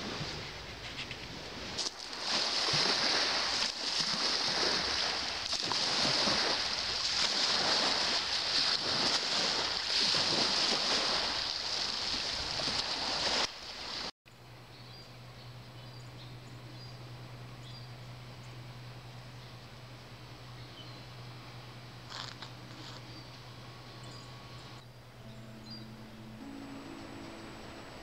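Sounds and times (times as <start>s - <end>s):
small waves lapping on gravel: 0.0s - 14.1s, 22.1s - 23.1s.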